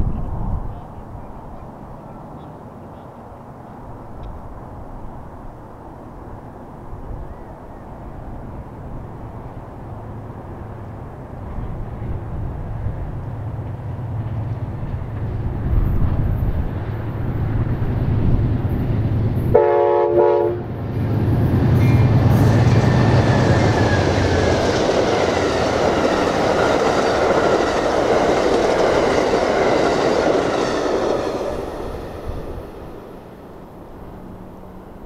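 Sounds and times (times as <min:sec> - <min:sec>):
diesel locomotive engines rumbling: 0:00.0 - 0:35.0
train wheels rolling on rail: 0:03.8 - 0:35.0
train horn blast: 0:19.5 - 0:20.8.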